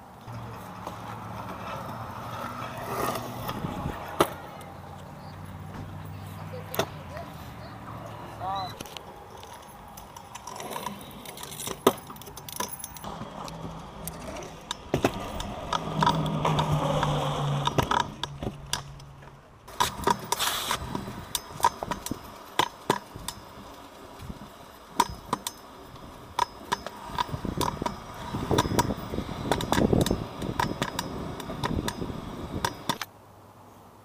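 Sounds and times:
scooter wheels rumbling on concrete: 0.0s - 33.1s
sharp clicks and clacks: 26.4s - 33.1s.

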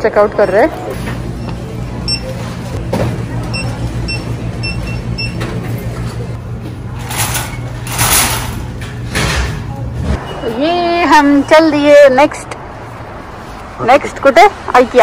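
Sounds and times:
barcode scanner beeping: 1.4s - 2.4s, 3.5s - 5.4s.

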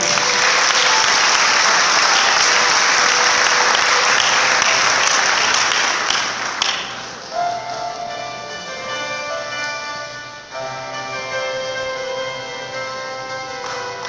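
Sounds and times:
audience applauding: 0.0s - 7.3s
recorded music: 0.0s - 14.0s.

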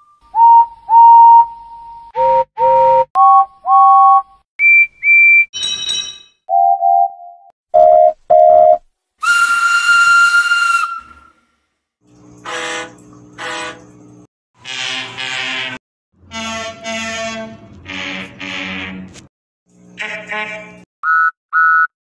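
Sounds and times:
steam locomotive whistle toots: 0.0s - 3.1s, 9.2s - 11.5s, 12.4s - 13.8s, 16.3s - 18.5s
diesel locomotive horn blasts: 12.4s - 14.0s, 14.6s - 19.1s, 20.0s - 20.8s.

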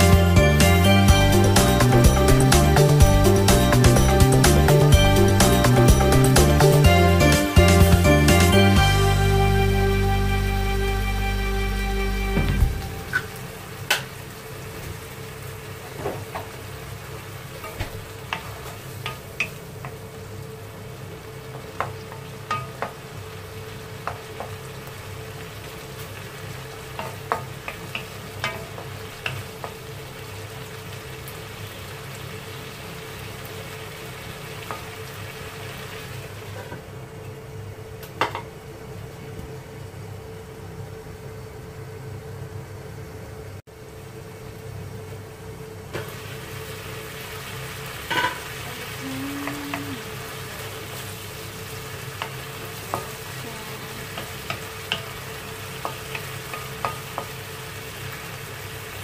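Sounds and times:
shrimp sizzling in a wok: 0.0s - 10.3s, 12.8s - 38.9s, 43.7s - 59.0s
steady hum: 0.0s - 14.8s, 36.9s - 55.7s.

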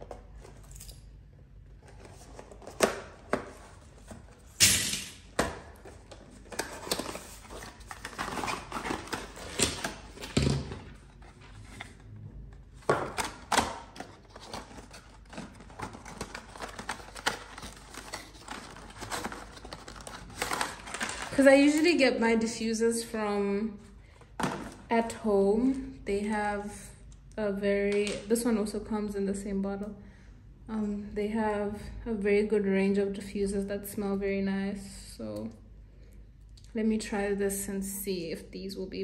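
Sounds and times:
card and paper rustling: 1.7s - 4.6s, 5.4s - 12.1s, 12.8s - 21.8s.

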